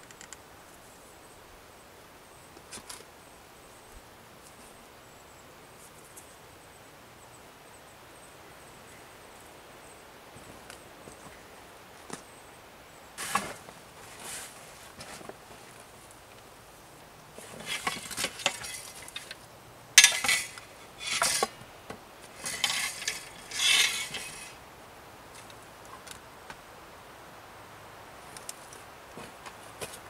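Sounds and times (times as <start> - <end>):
camp gear rustling: 13.2 - 16.1, 17.3 - 24.6.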